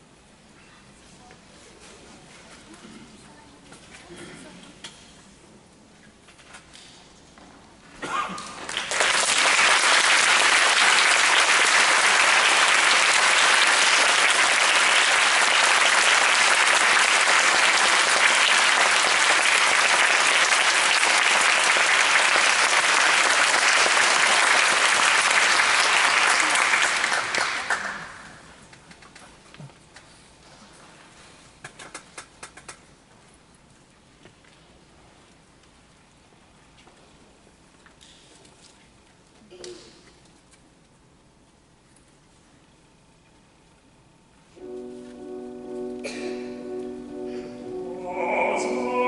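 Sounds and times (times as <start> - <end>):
audience applauding: 8.5 - 28.4.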